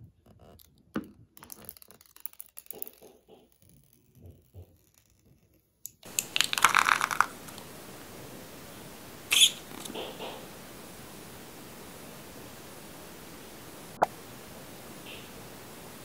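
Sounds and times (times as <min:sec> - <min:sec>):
plastic film peeling: 0:00.3 - 0:07.7, 0:09.3 - 0:10.0
plastic rustling: 0:01.3 - 0:07.9
background hiss: 0:05.9 - 0:16.0.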